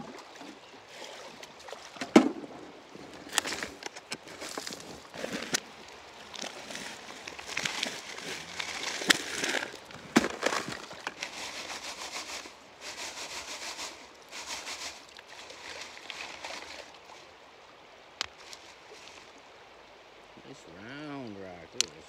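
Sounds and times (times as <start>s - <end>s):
hands scraping gravel over screen: 3.2s - 5.7s, 6.4s - 16.9s.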